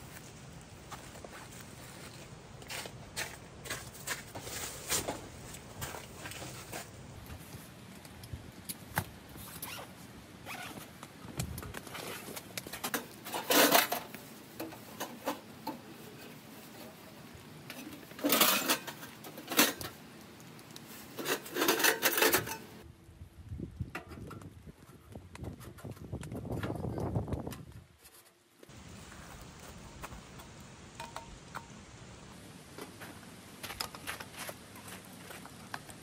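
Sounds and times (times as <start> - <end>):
zipper rasps: 9.5 - 10.8.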